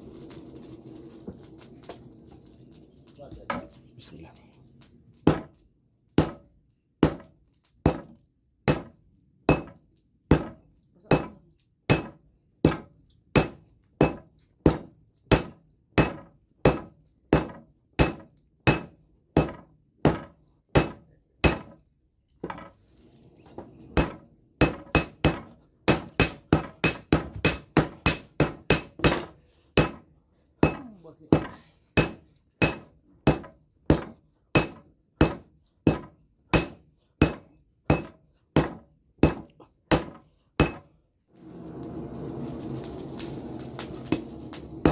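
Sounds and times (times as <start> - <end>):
sledgehammer clanging on steel: 23.5 - 41.0.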